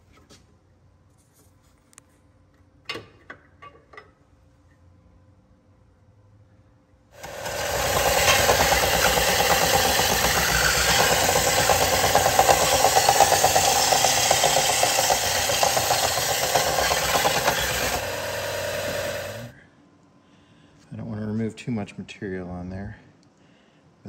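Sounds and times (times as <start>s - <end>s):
power grinder grinding metal: 7.2s - 19.5s.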